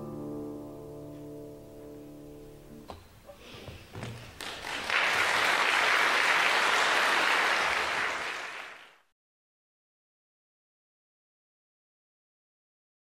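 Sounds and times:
audience applauding: 4.2s - 9.1s.

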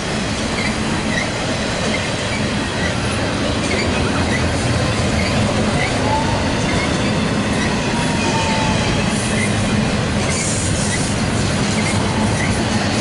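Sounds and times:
freight train rumbling past: 0.0s - 13.0s
faint wheel squeal: 5.1s - 9.6s, 10.2s - 12.6s.

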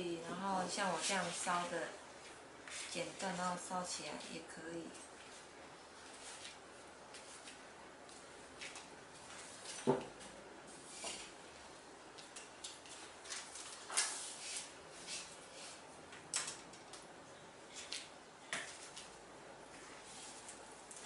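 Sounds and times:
soft rustling: 0.7s - 9.8s.

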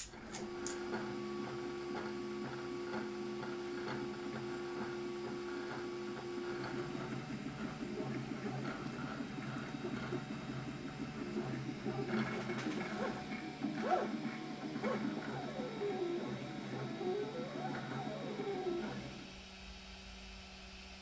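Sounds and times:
stepper motors whining: 7.8s - 19.2s.

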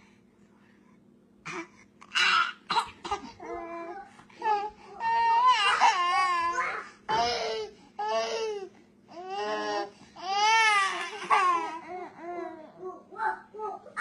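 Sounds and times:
baby crying: 3.4s - 14.0s.

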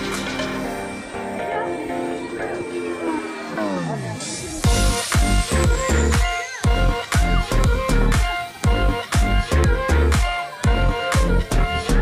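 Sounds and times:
electronic dance music: 0.0s - 12.0s
heavy kick drum: 4.6s - 12.0s.

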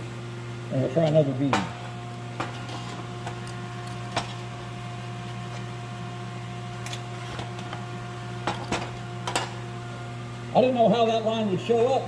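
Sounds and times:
arc welder humming: 0.0s - 12.0s.

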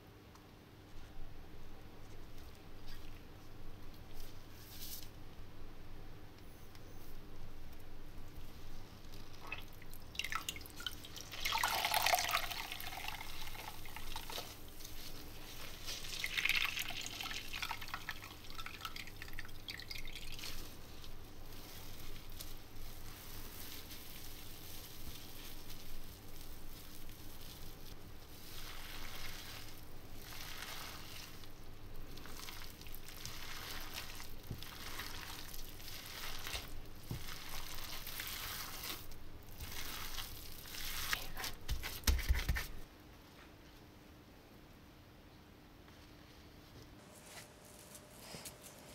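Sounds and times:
wet squelches of mixing meat: 8.4s - 42.0s
water dripping into a glass bowl: 9.3s - 14.1s.

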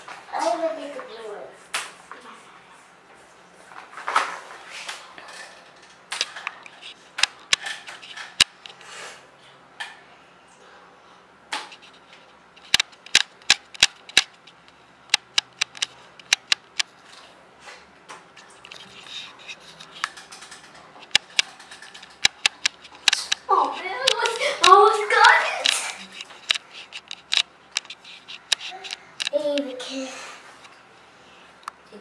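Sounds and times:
plastic toys clicking and clacking: 5.2s - 8.8s, 12.6s - 16.9s, 18.4s - 29.7s.

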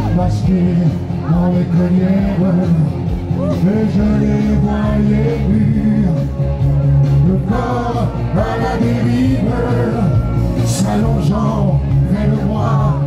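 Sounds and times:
man singing into microphone: 0.0s - 6.4s, 7.2s - 13.0s.

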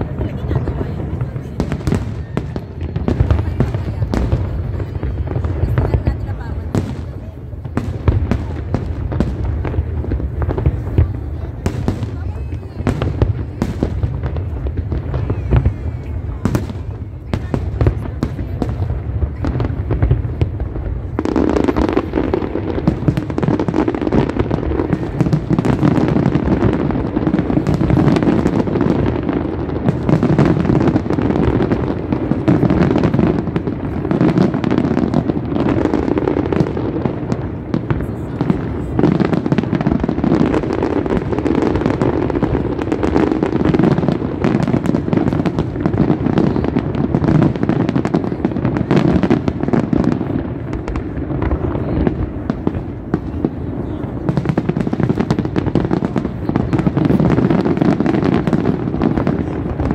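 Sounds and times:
fireworks bursting and crackling: 0.0s - 59.9s.

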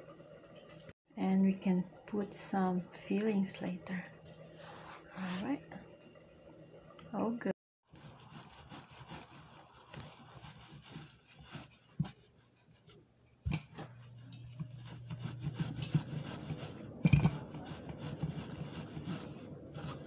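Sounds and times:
rolling pin rubbing over dough: 7.9s - 13.0s, 13.7s - 20.0s.

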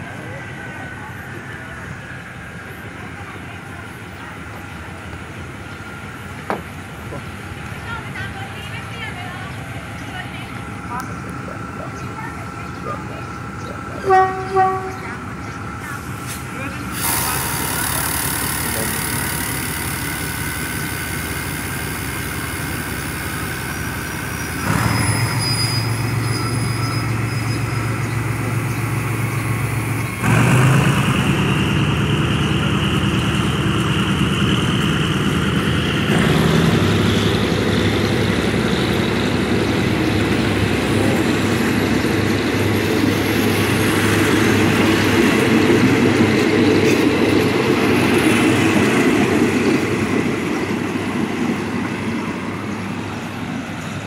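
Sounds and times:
diesel locomotive engine: 0.0s - 54.0s
train coaches rumbling: 0.0s - 54.0s.

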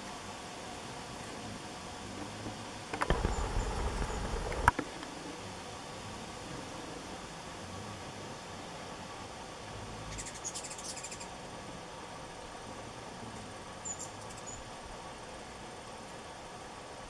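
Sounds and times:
hummingbird chattering: 3.0s - 4.7s, 10.1s - 11.4s, 13.8s - 14.7s.

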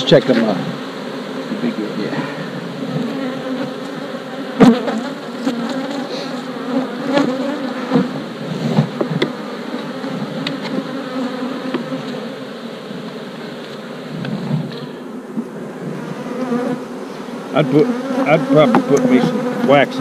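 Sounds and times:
bees buzzing: 0.0s - 20.0s
knocks on wooden hive boxes: 8.7s - 9.4s, 11.6s - 12.0s, 18.6s - 19.7s.

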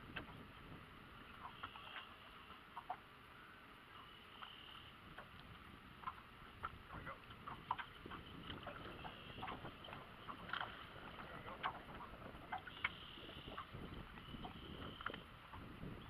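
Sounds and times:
light wind: 0.0s - 16.0s
small waves lapping against boat hull: 0.0s - 16.0s.

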